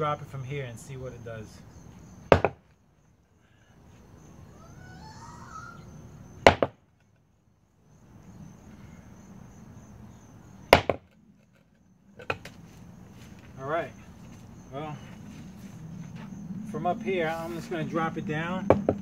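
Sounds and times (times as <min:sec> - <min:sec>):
sledgehammer knocking on concrete: 0:02.3 - 0:02.6, 0:06.4 - 0:06.8, 0:10.8 - 0:11.1, 0:18.7 - 0:19.0.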